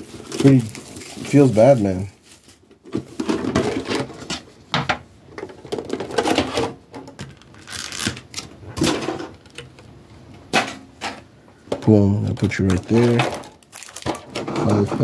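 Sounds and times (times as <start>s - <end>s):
card packaging rustling: 0.0s - 4.3s, 5.7s - 9.5s, 11.9s - 14.9s.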